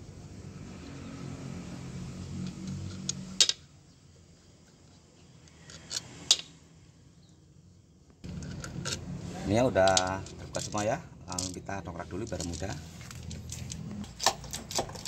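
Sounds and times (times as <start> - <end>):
steel nuts and washers clinking: 2.4 - 6.6, 8.2 - 15.0.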